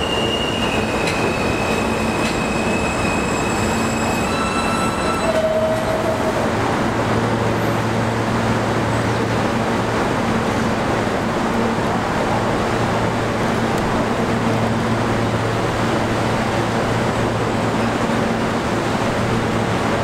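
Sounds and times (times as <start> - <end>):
subway train rumble and hiss: 0.0 - 20.0.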